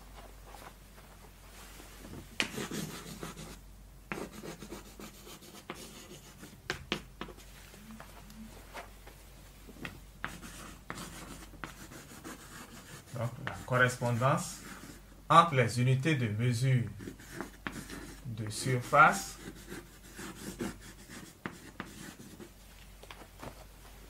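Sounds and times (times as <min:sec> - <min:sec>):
chalk writing on blackboard: 0:02.4 - 0:07.5, 0:10.2 - 0:15.0, 0:17.0 - 0:22.6.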